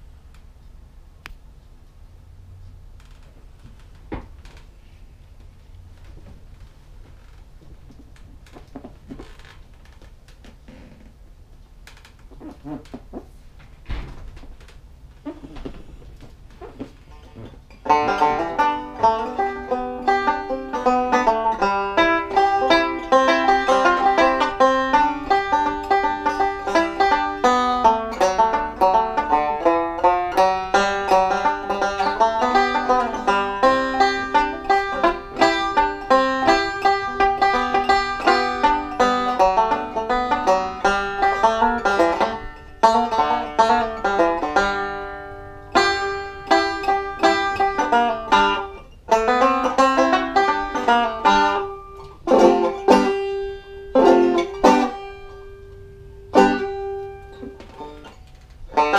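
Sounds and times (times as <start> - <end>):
banjo picking bluegrass tune: 17.0 - 55.6, 56.2 - 58.9.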